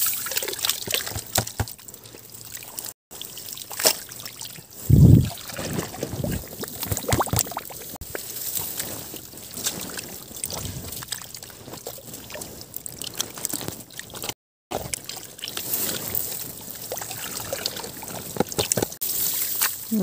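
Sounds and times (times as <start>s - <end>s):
hands splashing in muddy water: 3.7s - 19.9s
wet clicks and squelches: 9.5s - 15.7s.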